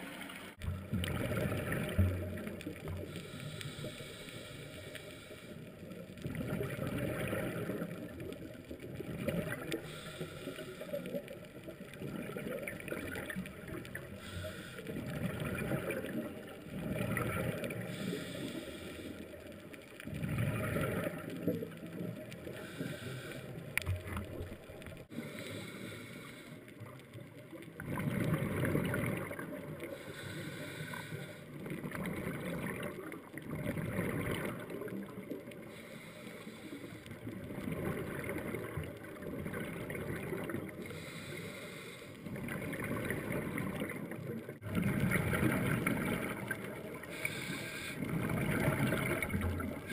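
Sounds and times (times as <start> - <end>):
muffled underwater rumble: 0.0 - 49.9
regulator bubbles exhaled underwater: 0.0 - 49.9.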